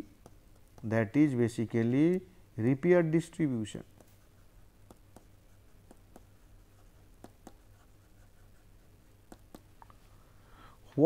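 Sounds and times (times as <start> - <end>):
stylus tapping on pen tablet: 0.0 - 0.9, 3.9 - 4.2, 4.8 - 7.8, 9.2 - 9.7
low room hum: 0.0 - 11.0.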